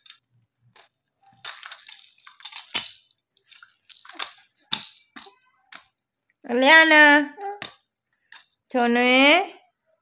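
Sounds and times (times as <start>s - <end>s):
plastic baby rattle clattering: 0.0s - 6.0s, 7.4s - 8.8s.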